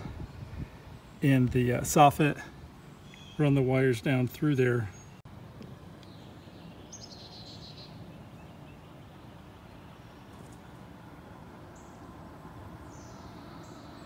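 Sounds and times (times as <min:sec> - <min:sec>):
faint bird chirps: 0:02.8 - 0:03.6.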